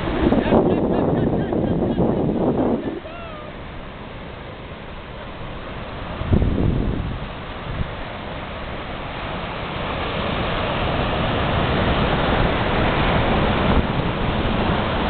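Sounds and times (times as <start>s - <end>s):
ocean surf breaking: 0.0s - 15.0s.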